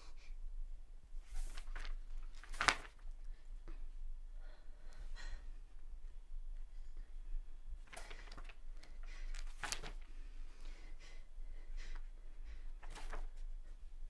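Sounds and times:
paper sheets rustling: 0:01.3 - 0:03.1, 0:07.9 - 0:10.1, 0:12.8 - 0:13.5
woman breathing tearfully: 0:04.4 - 0:05.6, 0:10.3 - 0:13.0.

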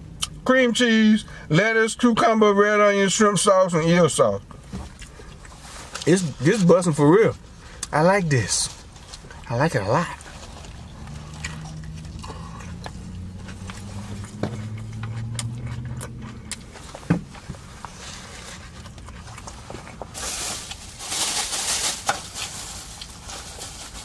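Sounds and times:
wet chewing and lip smacks: 0:10.2 - 0:18.0, 0:18.6 - 0:20.1.

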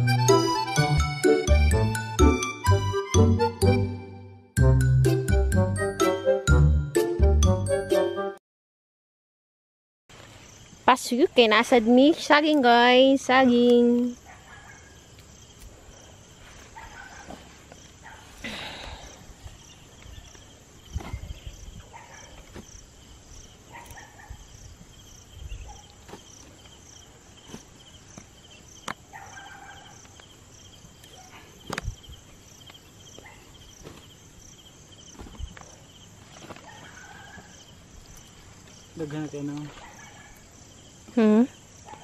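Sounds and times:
insects chirring: 0:10.1 - 0:42.0
rustles and thumps into sack: 0:33.8 - 0:34.2, 0:35.0 - 0:37.0.

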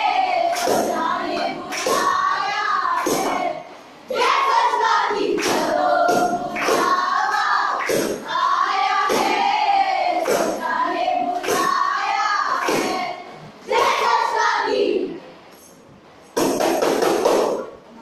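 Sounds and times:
group singing a chant in unison: 0:00.0 - 0:15.2
sharp hand claps: 0:00.5 - 0:02.2, 0:02.9 - 0:03.4, 0:05.4 - 0:08.3, 0:09.0 - 0:09.4, 0:10.2 - 0:10.6, 0:11.4 - 0:11.8, 0:12.5 - 0:13.0, 0:16.4 - 0:17.7.

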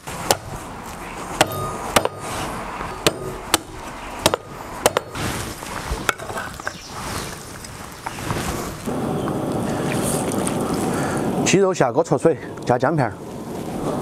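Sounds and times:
cleaver chopping on wooden block: 0:00.2 - 0:00.6, 0:01.4 - 0:02.3, 0:03.0 - 0:05.2.

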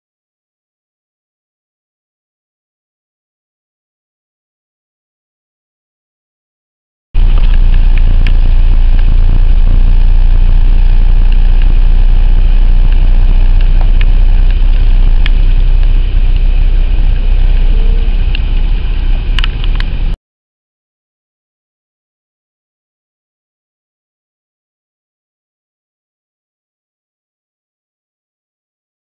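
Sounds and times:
car engine and road rumble: 0:07.2 - 0:20.2.

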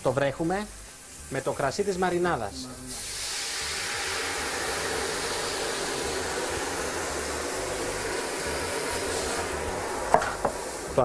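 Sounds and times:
hissing and sizzling in pan: 0:00.0 - 0:11.0
wine pouring into pot: 0:01.6 - 0:11.0.

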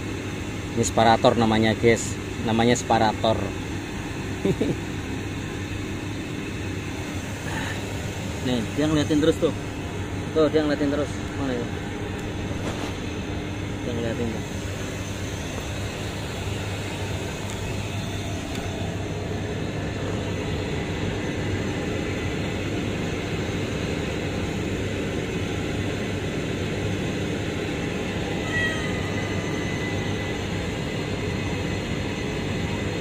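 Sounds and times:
machinery humming drone: 0:00.0 - 0:33.0.

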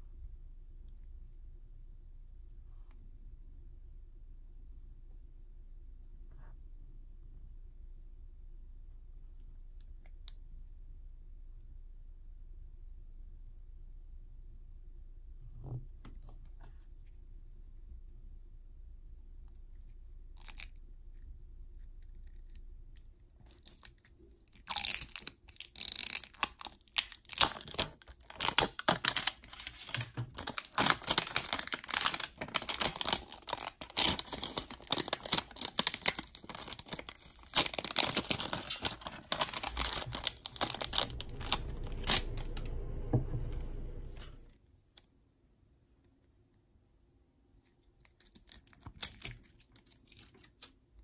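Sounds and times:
plastic wrap crinkling and tearing: 0:23.5 - 0:42.3, 0:48.1 - 0:50.7.

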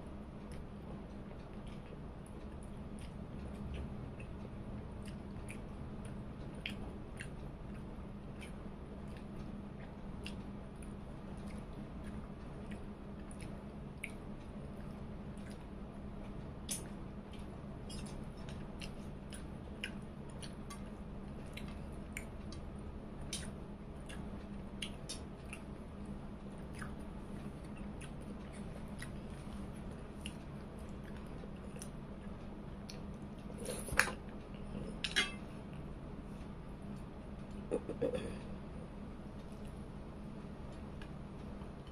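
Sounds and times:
steady low hum: 0:00.0 - 0:41.9
person chewing food: 0:00.3 - 0:38.4.

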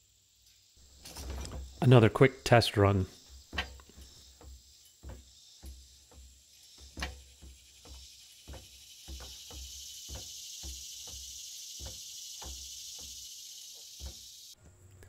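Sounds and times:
high insect buzz: 0:00.0 - 0:14.6
barrel tumbler knocking: 0:03.3 - 0:13.2.

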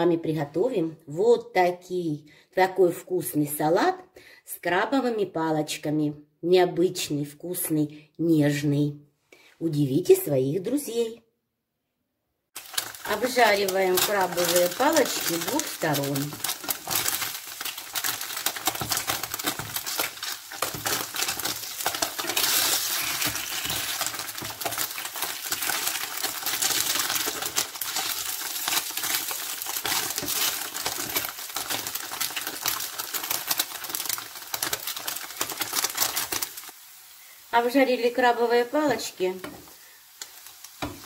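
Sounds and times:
oil sizzling in a frying pan: 0:12.6 - 0:41.0.

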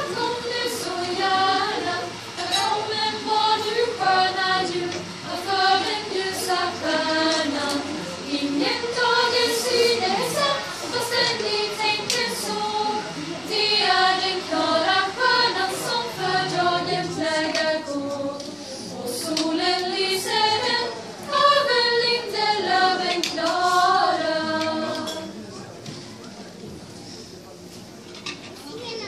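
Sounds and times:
women's choir singing unaccompanied: 0:00.0 - 0:25.7.

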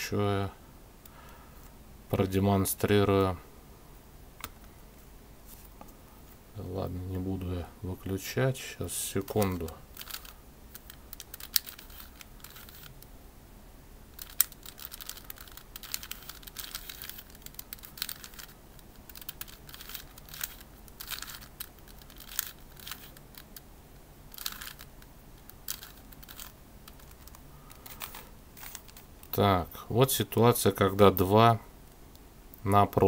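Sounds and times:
plastic puzzle clicking: 0:09.3 - 0:13.1, 0:14.2 - 0:23.7, 0:24.3 - 0:29.4.

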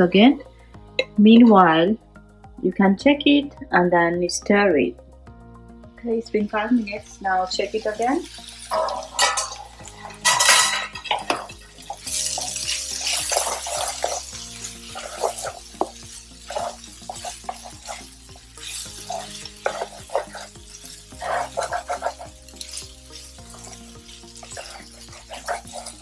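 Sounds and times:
spatula scraping a frying pan: 0:08.4 - 0:26.0.

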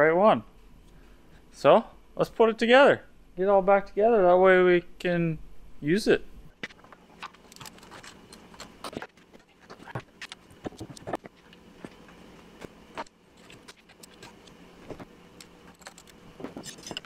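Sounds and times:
faint steady hum: 0:00.0 - 0:17.0
metal tools clicking and clinking: 0:15.7 - 0:17.0.

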